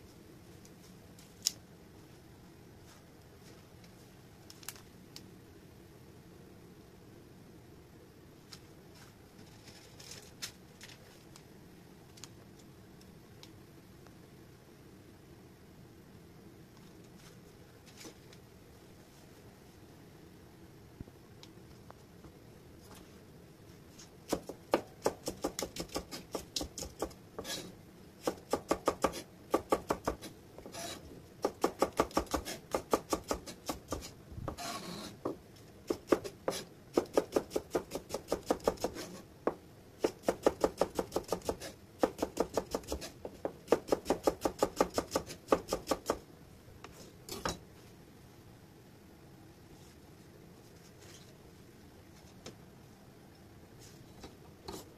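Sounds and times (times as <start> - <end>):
knife slicing onion on cutting board: 24.3 - 39.2, 40.0 - 46.2.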